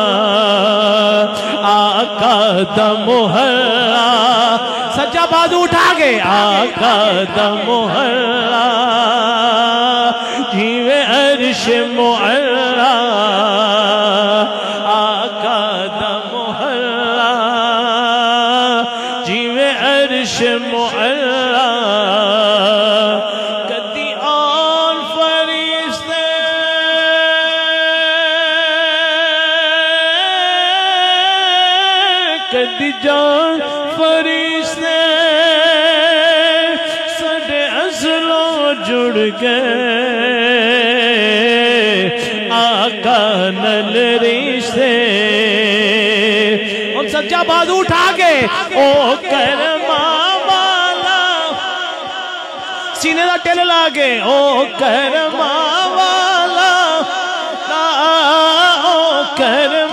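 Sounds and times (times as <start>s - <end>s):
man singing into microphone: 0.0s - 59.9s.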